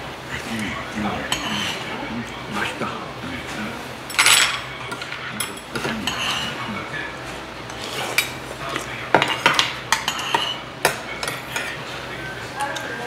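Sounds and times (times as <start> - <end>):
spoons scraping and clinking bowls: 1.0 - 1.9, 4.1 - 6.9, 7.7 - 11.9.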